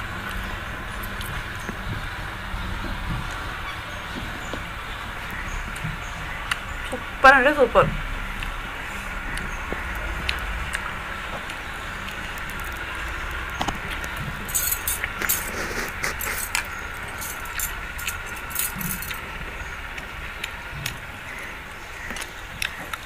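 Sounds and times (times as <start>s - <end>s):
low background hum: 0.0s - 23.0s
bangles clinking: 14.4s - 19.2s.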